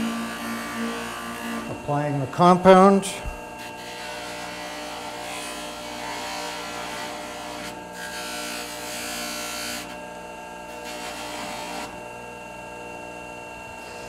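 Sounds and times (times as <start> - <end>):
compound rubbing on spinning buff: 0.0 - 9.9
bench polishing motor hum: 0.0 - 14.0.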